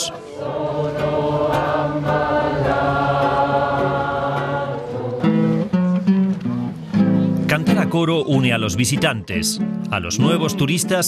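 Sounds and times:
crowd choir singing: 0.0 - 6.1.

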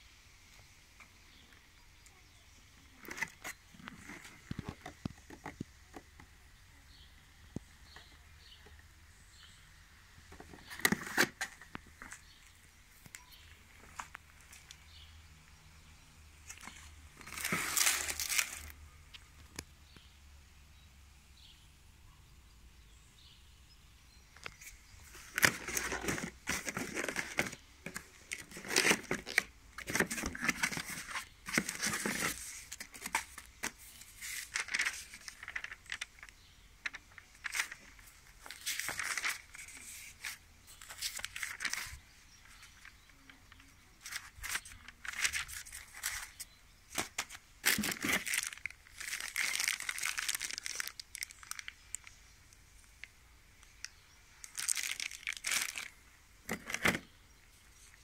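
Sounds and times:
paper pages rustling: 16.5 - 18.8, 24.4 - 51.6
plastic bag crinkling: 16.5 - 18.8, 25.0 - 43.1, 44.0 - 52.2, 54.4 - 57.1.

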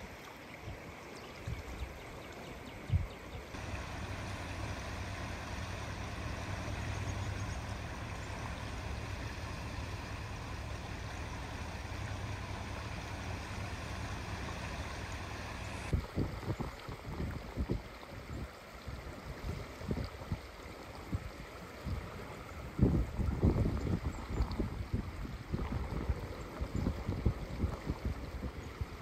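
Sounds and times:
flooded creek rushing: 0.0 - 29.0
low rumble: 3.6 - 16.1.

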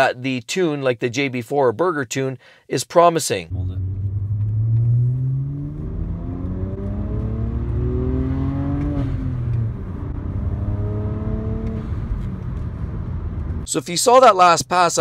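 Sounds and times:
car engine accelerating: 3.5 - 13.7.

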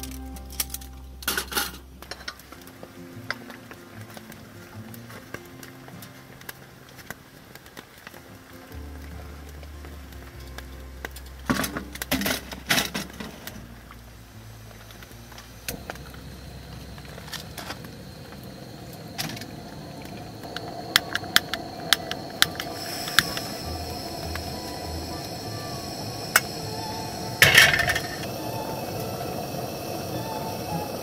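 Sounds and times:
gas burner hissing: 0.0 - 31.0
metal cookware clinking: 0.5 - 2.4
sharp ticks and crackles: 2.0 - 28.4.

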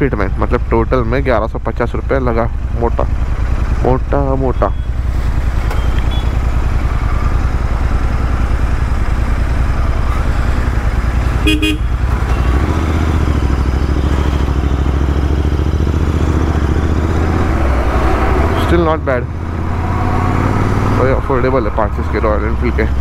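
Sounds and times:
motorcycle engine running: 0.2 - 21.3
vehicle horn beeping: 5.8 - 6.4, 11.4 - 13.3.

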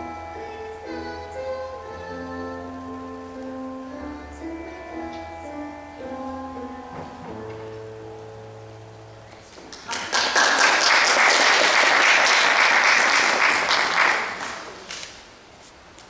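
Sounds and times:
stage piano chord: 0.0 - 9.8
audience applauding: 9.6 - 15.1.

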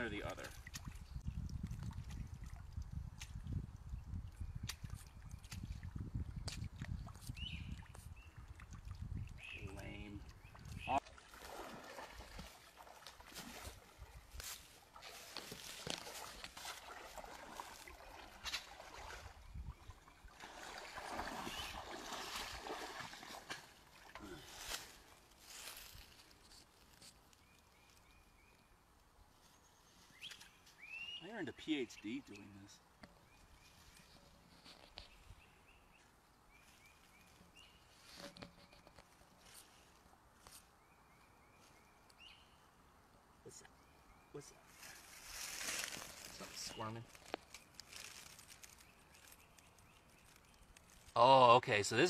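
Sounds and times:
water sloshing and splashing: 0.3 - 3.5, 10.2 - 25.2
running water: 4.8 - 24.6
rustling of wet leaf litter: 11.2 - 19.4, 20.5 - 28.2, 44.6 - 51.5.

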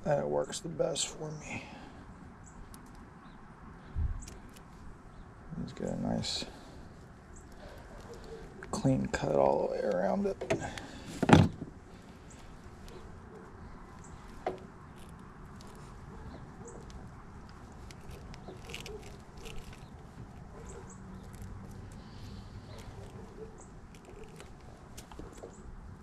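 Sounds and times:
tool scraping wire insulation: 13.9 - 25.5.

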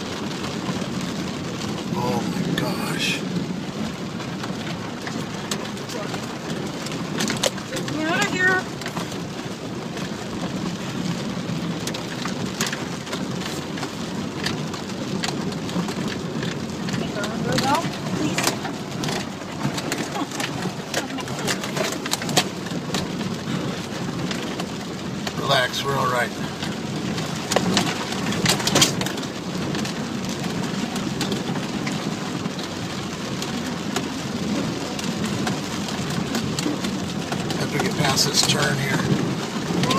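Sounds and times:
rain and water rushing on car: 0.0 - 39.9.

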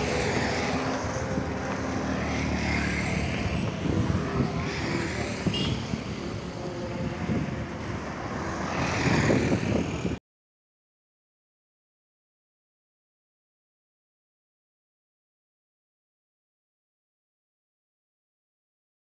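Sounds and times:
motor scooter passing: 0.0 - 10.2
truck passing: 0.0 - 10.2.

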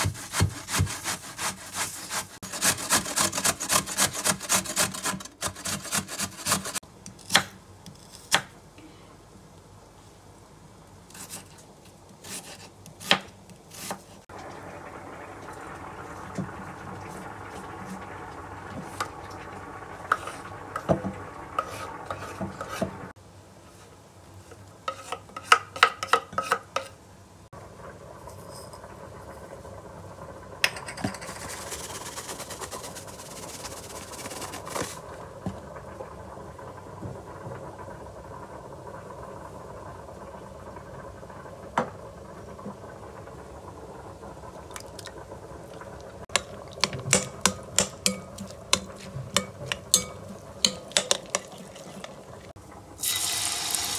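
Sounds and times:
knife scraping wooden board: 0.0 - 8.4
seasoning granules shaken from box: 31.3 - 35.0.

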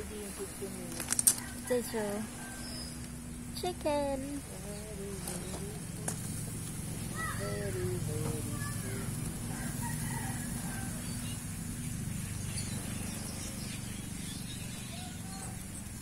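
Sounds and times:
steady low hum: 0.0 - 16.0
rooster crowing: 1.2 - 3.3, 8.5 - 11.7.

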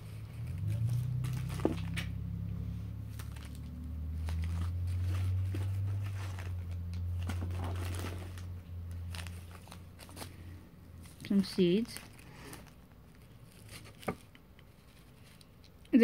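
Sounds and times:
low steady hum: 0.0 - 16.0
packaging rustling and clicks: 0.4 - 2.2, 3.1 - 15.7.

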